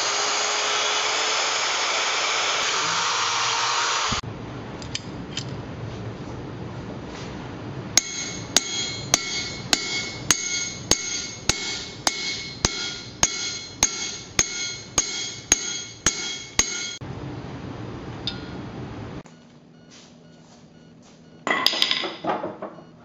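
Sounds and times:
hammer blows on metal ringing: 8.0s - 17.0s.

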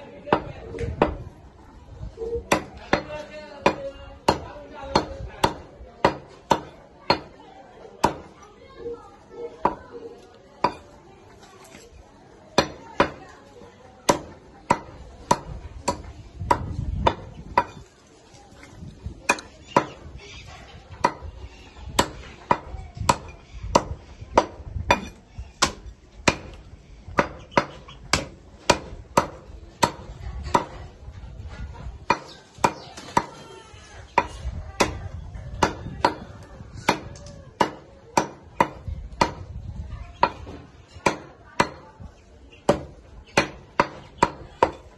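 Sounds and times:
cleaver chopping on wood block: 2.5s - 7.3s, 8.0s - 8.3s, 14.1s - 17.8s, 19.3s - 20.1s, 21.0s - 21.3s, 22.0s - 30.8s, 32.1s - 33.3s, 34.2s - 35.0s, 35.6s - 39.5s, 40.2s - 41.8s, 42.7s - 44.8s.

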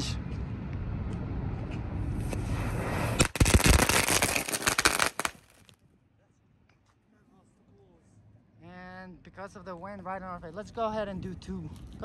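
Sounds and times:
firework hissing: 2.3s - 5.7s
firework cracks and pops: 3.0s - 5.8s.

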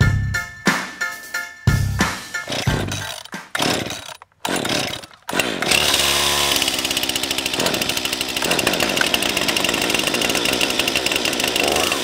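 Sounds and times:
chainsaws cutting logs: 2.4s - 12.0s.

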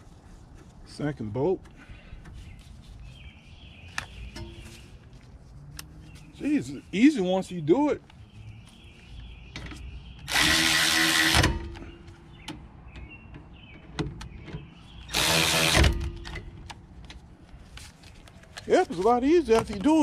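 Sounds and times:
electric ratchet whirring: 10.2s - 11.8s, 15.1s - 16.2s.

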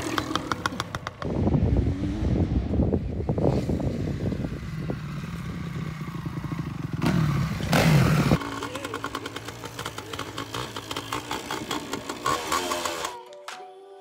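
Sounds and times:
dirt bike engine revving: 0.0s - 13.2s
motorcycle engine running steadily: 3.8s - 12.6s.

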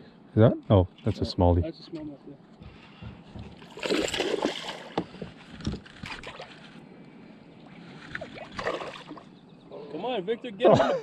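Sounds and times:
fish thrashing and splashing: 3.6s - 6.8s, 8.1s - 9.2s.

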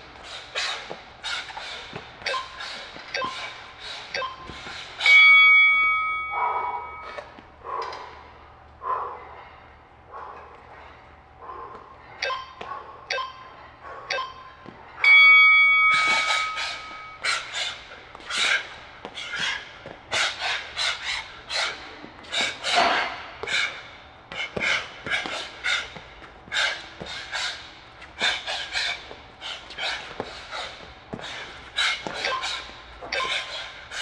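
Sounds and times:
interval timer beeps: 3.1s - 7.2s, 12.2s - 17.2s.

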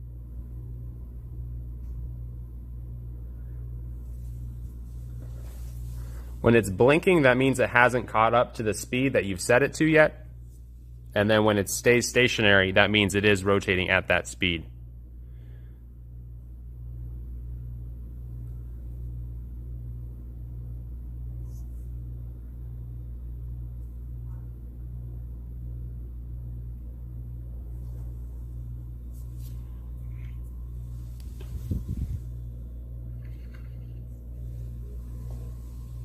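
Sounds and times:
magnetic stirrer humming: 17.0s - 36.0s.

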